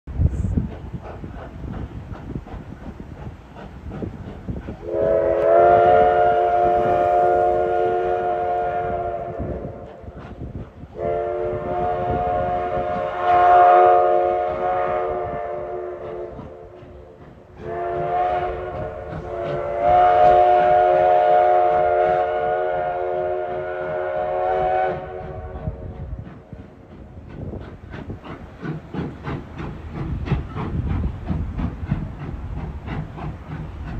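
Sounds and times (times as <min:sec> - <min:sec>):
steam engine beats: 0:00.1 - 0:33.9
steam locomotive whistle blasts: 0:04.8 - 0:10.1, 0:10.9 - 0:16.8, 0:17.6 - 0:26.0.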